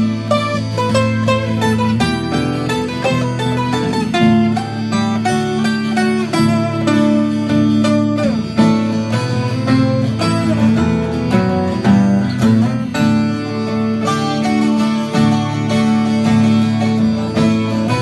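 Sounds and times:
twelve-string acoustic guitar melody: 0:00.0 - 0:18.0.

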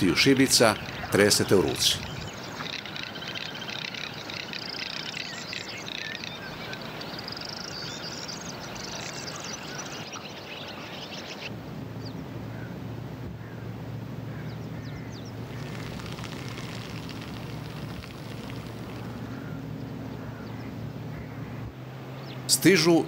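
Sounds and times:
faint chirps: 0:00.0 - 0:11.5, 0:15.2 - 0:19.6
duck calling with dry rattle: 0:02.5 - 0:06.3, 0:15.4 - 0:19.5
steady low rumble: 0:11.5 - 0:22.3.

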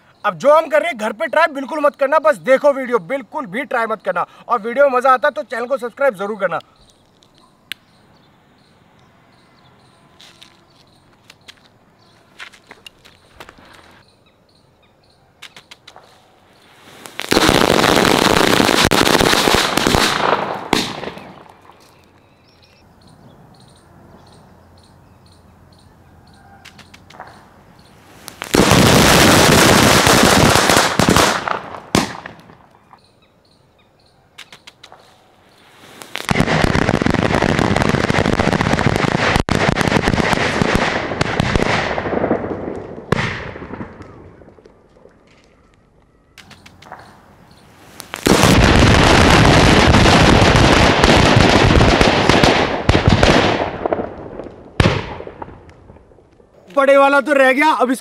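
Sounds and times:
firecrackers going off: 0:16.6 - 0:21.9, 0:28.0 - 0:32.7, 0:35.6 - 0:44.8, 0:47.7 - 0:56.3
sharp firecracker bang: 0:17.3 - 0:21.4, 0:28.3 - 0:32.4.

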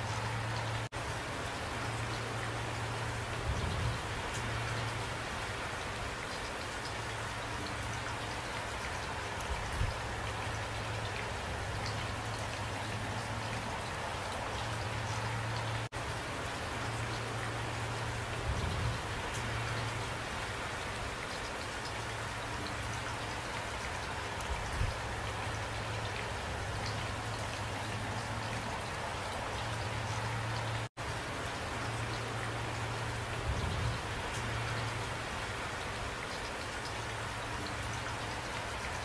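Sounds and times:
steady rain falling: 0:00.0 - 0:39.0.

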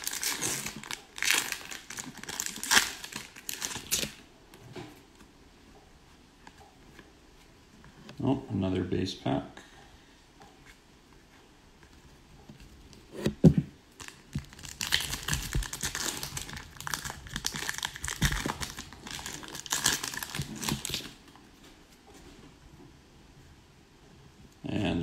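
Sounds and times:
foil wrapper tearing and crinkling: 0:00.0 - 0:04.2, 0:14.0 - 0:21.2.

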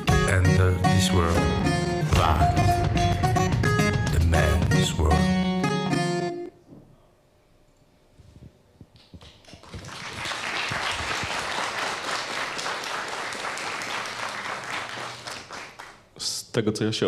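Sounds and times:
music track: 0:00.0 - 0:06.5
audience applause: 0:09.2 - 0:16.1.

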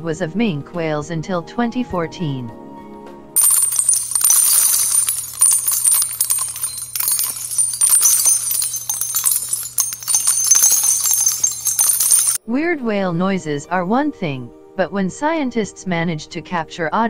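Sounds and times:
jingling crackle with clicks: 0:03.4 - 0:12.4.

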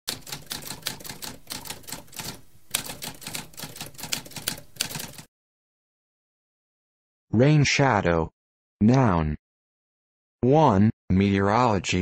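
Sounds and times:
typewriter typing: 0:00.1 - 0:05.3.

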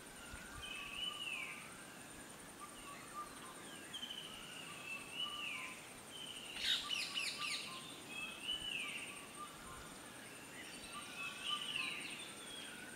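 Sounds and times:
birds singing: 0:00.0 - 0:12.9
high insect trill: 0:00.0 - 0:12.9
bird chirps: 0:00.3 - 0:01.7, 0:02.6 - 0:12.8.

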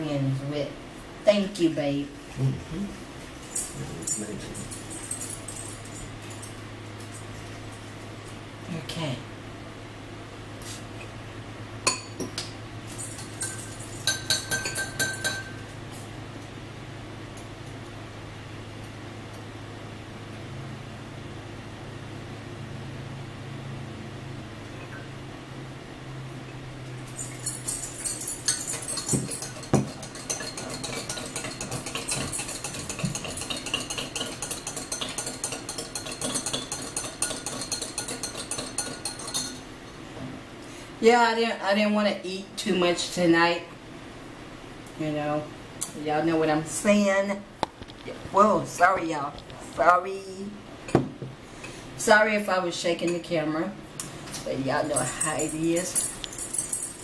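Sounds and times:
spoon clinking against glass: 0:13.0 - 0:15.6, 0:27.1 - 0:39.7, 0:54.9 - 0:57.0.

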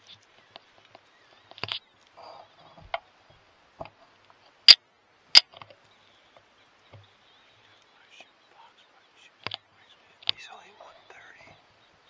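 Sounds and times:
faint rustling: 0:00.0 - 0:11.8
small ticks: 0:05.4 - 0:11.6.

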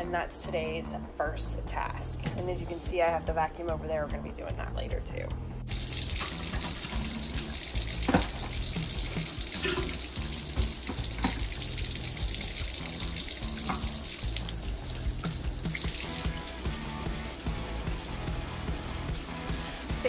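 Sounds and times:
faucet running into sink: 0:05.7 - 0:20.0
plastic bottles knocking: 0:08.0 - 0:11.6.

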